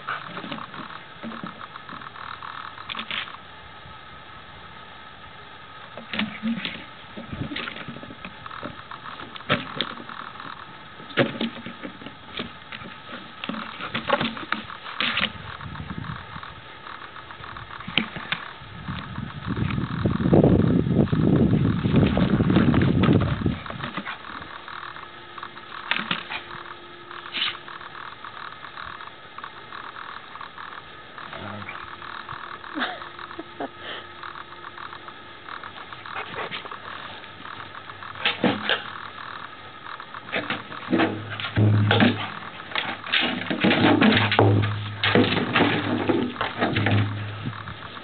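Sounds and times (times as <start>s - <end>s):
camcorder clicking and hum: 7.6s - 41.1s.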